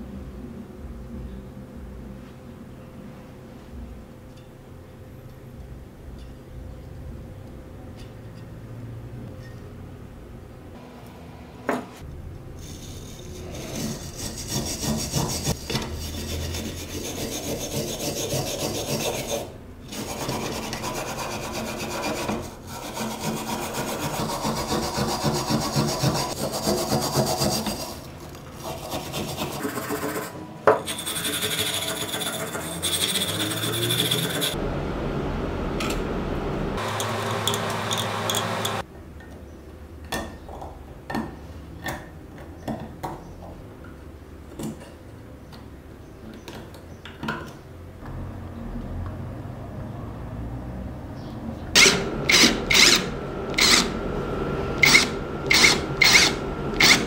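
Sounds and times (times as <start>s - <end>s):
wire brush scrubbing rusty metal: 12.6s - 34.6s.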